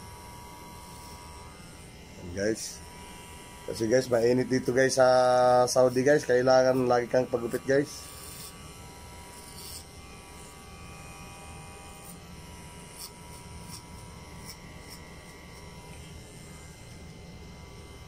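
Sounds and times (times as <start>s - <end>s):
electric hair clipper running: 0.0s - 18.0s.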